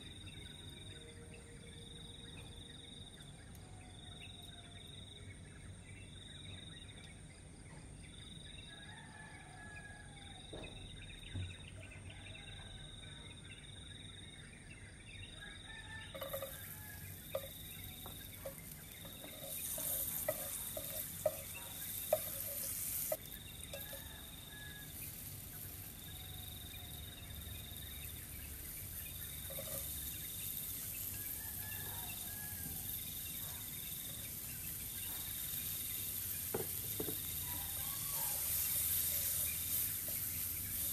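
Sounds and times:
insect chirping: 16.1s - 40.9s
oil sizzling in a frying pan: 16.1s - 40.9s
birds calling: 16.2s - 26.0s.

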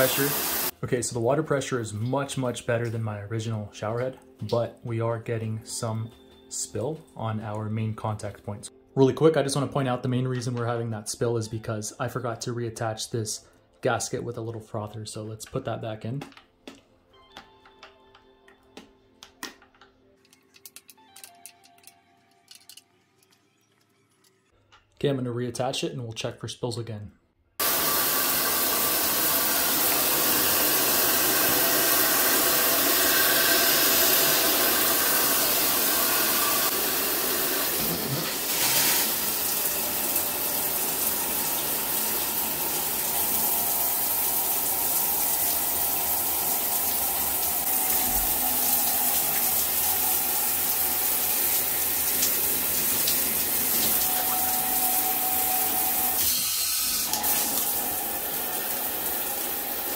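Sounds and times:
shower spraying on tiled walls: 0.0s - 0.8s, 27.6s - 59.9s.

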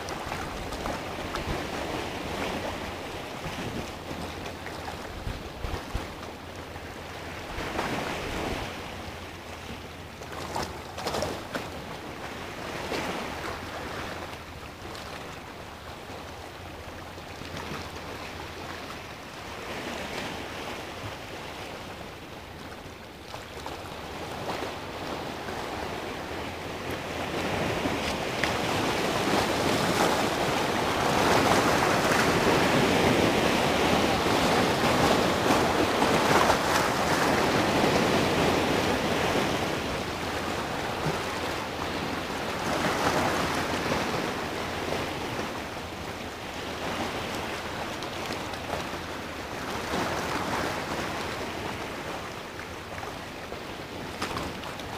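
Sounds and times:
sea surf breaking over rocks: 23.6s - 54.9s.

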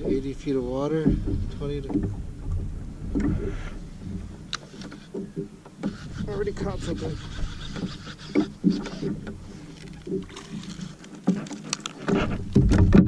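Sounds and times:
low thump: 0.0s - 6.3s, 12.1s - 13.0s
fishing reel clicking: 5.8s - 11.1s.

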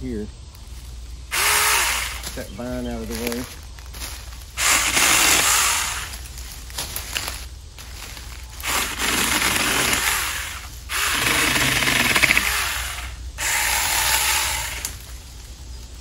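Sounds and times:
electric chainsaw cutting: 1.3s - 2.4s, 4.6s - 6.3s, 8.6s - 15.2s.

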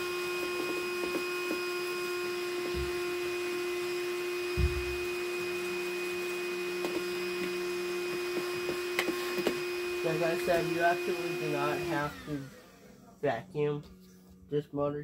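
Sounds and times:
cordless vacuum whining: 0.0s - 13.8s
nozzle knocking on housing: 4.5s - 5.1s.

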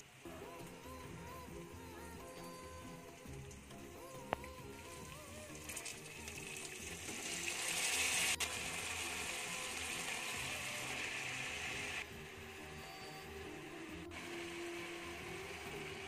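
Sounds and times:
greens sizzling in a pan: 5.5s - 12.0s.

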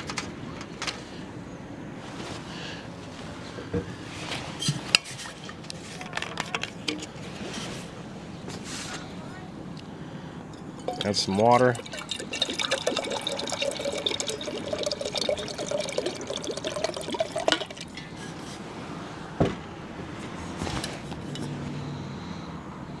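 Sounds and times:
water pouring into steel cup: 10.8s - 18.0s.

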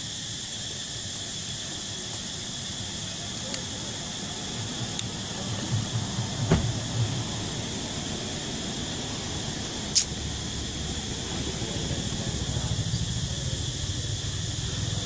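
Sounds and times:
high-pitched insect drone: 0.0s - 15.0s
sharp click: 9.9s - 10.2s.

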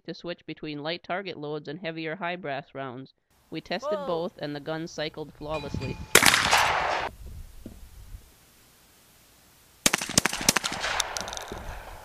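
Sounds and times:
shotgun shots: 6.1s - 7.1s, 9.8s - 12.0s
sharp cracks: 6.2s - 7.1s, 9.8s - 12.0s.

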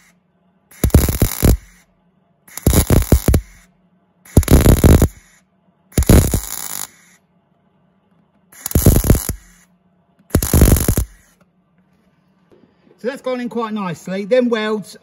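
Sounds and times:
welder arc crackling: 0.7s - 1.8s, 2.5s - 3.7s, 4.3s - 5.4s, 6.0s - 7.2s, 8.6s - 9.6s, 10.3s - 11.4s.

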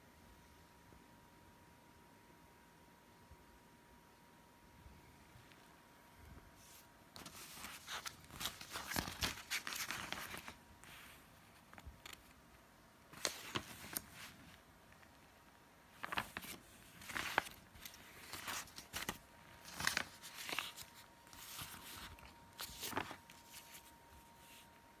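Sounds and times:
paper leaflets rustling: 6.6s - 12.4s, 13.1s - 15.1s, 15.9s - 24.8s.

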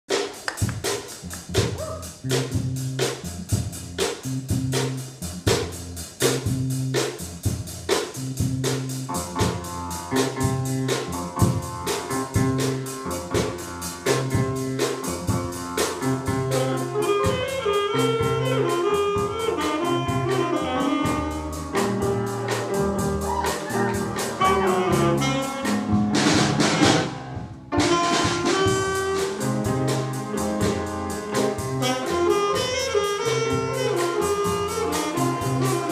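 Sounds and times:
drum kit: 0.1s - 35.9s
piano: 0.1s - 35.9s
electric bass guitar: 0.6s - 35.9s
saxophone: 16.0s - 27.1s, 27.8s - 35.9s.

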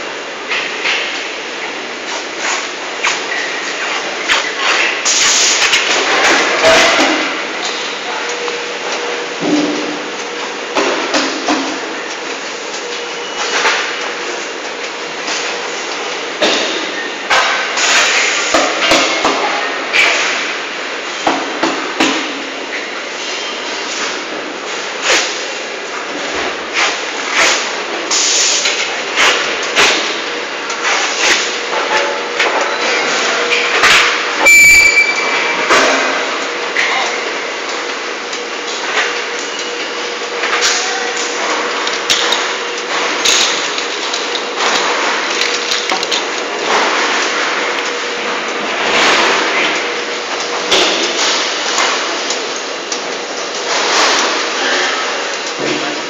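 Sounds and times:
factory background noise: 0.0s - 56.0s
knocks and clanks on roller conveyor: 0.0s - 56.0s
sharp knocks on steel conveyor: 2.1s - 8.0s, 9.4s - 10.0s, 10.7s - 11.9s, 16.4s - 20.6s, 21.2s - 22.6s, 26.4s - 34.8s, 50.5s - 52.6s.

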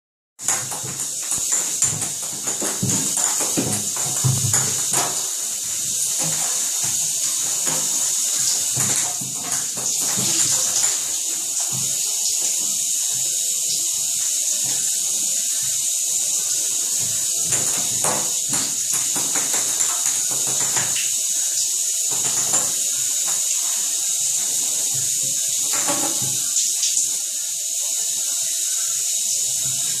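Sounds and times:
ball clattering in bathtub: 0.4s - 12.0s, 16.2s - 21.1s, 22.1s - 23.5s, 24.4s - 26.6s
steady hiss: 0.4s - 30.0s.

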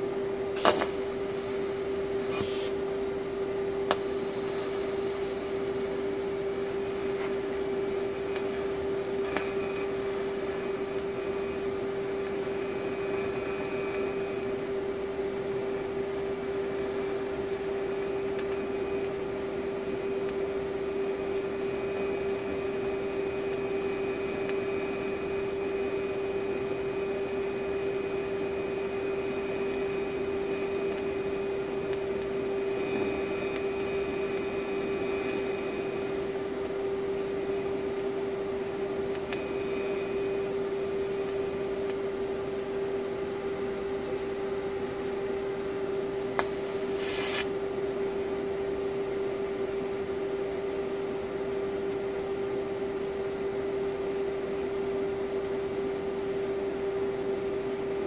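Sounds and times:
welding arc humming: 0.0s - 44.0s, 45.4s - 58.0s.

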